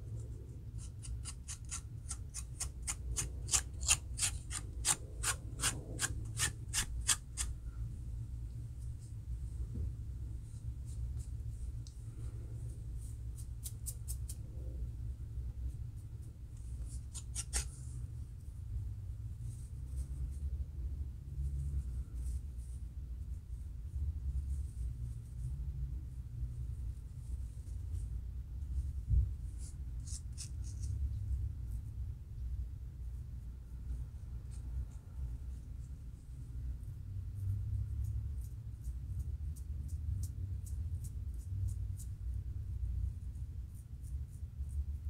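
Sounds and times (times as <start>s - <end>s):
steady low rumble: 0.0s - 45.0s
fingernails scratching scalp: 0.8s - 7.6s, 16.9s - 17.8s.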